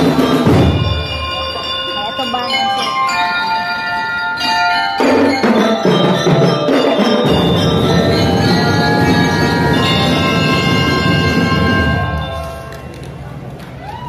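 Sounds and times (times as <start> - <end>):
marching drums: 0.0 - 1.6, 5.0 - 12.7
bell-lyre melody: 0.0 - 13.0.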